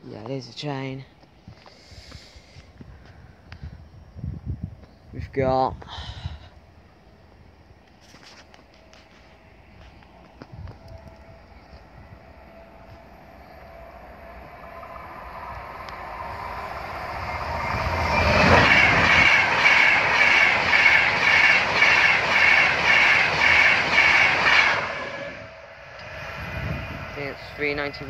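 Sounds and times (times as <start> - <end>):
electric train passing: 6.6 - 28.0.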